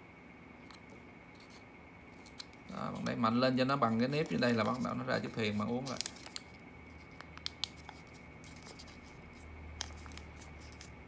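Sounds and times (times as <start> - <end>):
paper rustling: 2.2 - 11.0.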